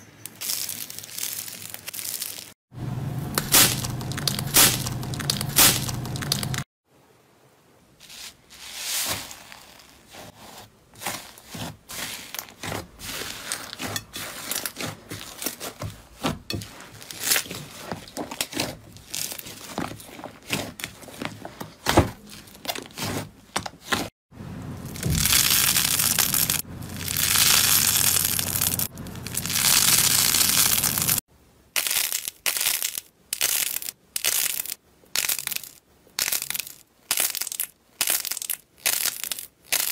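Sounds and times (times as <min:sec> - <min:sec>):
slime crackling and popping: 0:24.9 - 0:31.2, 0:31.8 - 0:39.9.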